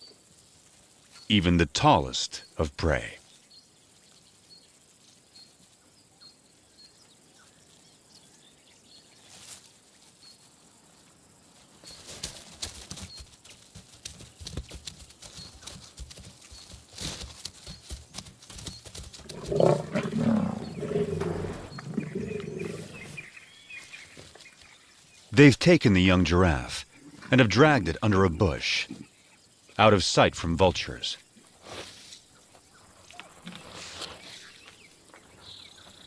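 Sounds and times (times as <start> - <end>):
lions growling and snarling: 19.2 - 23.4.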